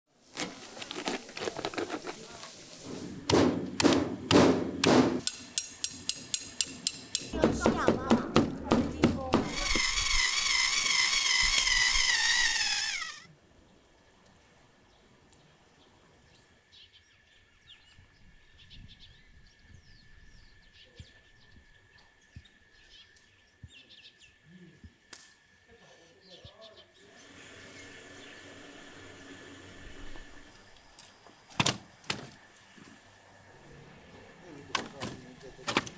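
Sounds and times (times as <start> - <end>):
thin high whine: 9.4 - 13.3
small birds chirping: 14.9 - 25.0, 25.7 - 28.6.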